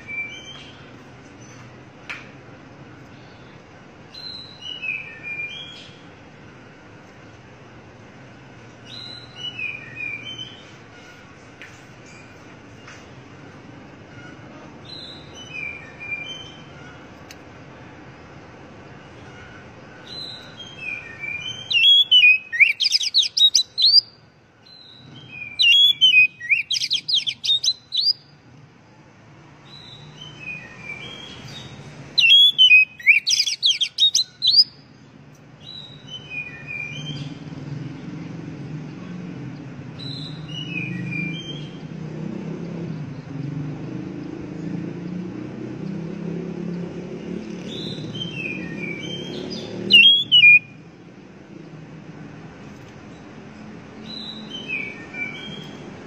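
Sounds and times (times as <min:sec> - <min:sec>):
songbird singing trills: 0:00.0 - 0:01.7, 0:03.1 - 0:06.1, 0:08.8 - 0:10.8, 0:20.0 - 0:28.5, 0:29.6 - 0:37.5, 0:40.0 - 0:41.9, 0:47.4 - 0:50.9, 0:53.1 - 0:56.0.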